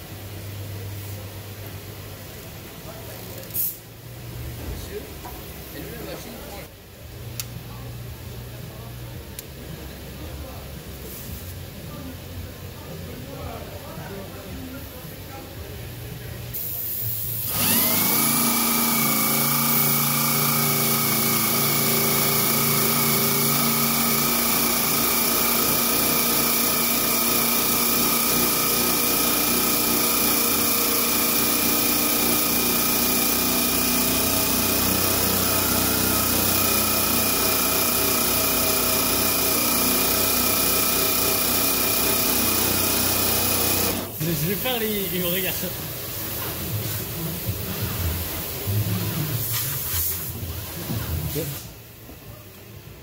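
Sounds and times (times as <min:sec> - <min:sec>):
electric drill disc whining on metal: 0:17.4 - 0:44.2.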